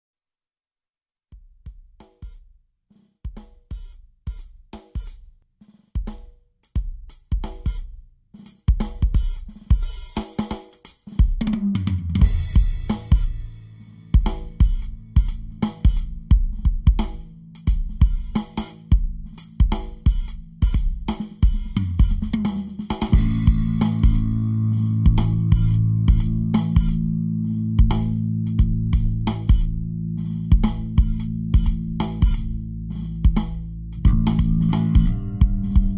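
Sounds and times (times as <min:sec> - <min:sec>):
drum kit beat: 0:01.3 - 0:35.9
bass line: 0:11.8 - 0:35.9.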